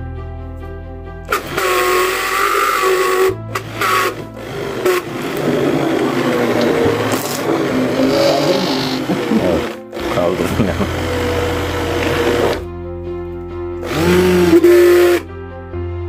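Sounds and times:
immersion blender motor humming: 0:01.3 - 0:12.6, 0:13.8 - 0:15.3
liquid churning: 0:03.6 - 0:10.2.

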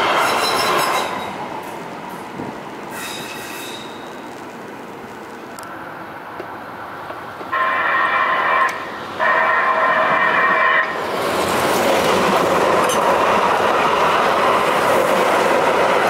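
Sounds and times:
rail line rumble: 0:00.0 - 0:16.0
train horn blasts: 0:07.5 - 0:11.0.

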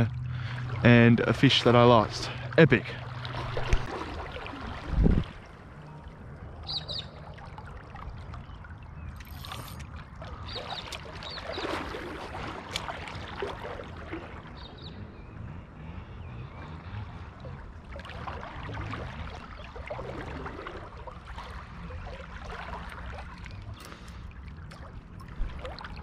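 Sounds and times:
river water sloshing: 0:00.0 - 0:26.0
bird chirps: 0:06.6 - 0:07.2
fishing reel whirring: 0:09.2 - 0:09.9.

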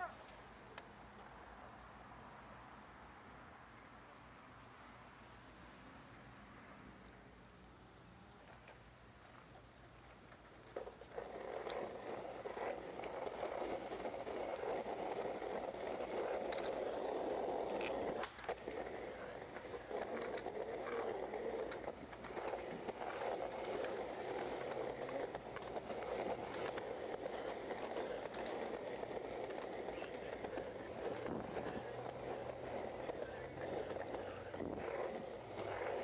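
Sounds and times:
skateboard wheels rolling on asphalt: 0:00.0 - 0:36.0
skateboard clicks and rattles: 0:08.4 - 0:36.0.

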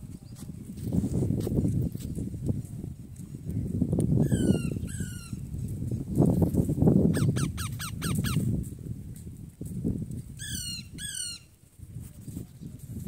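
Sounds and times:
parakeet harsh squawks: 0:07.2 - 0:08.4
parakeets chirping: 0:07.2 - 0:08.4.

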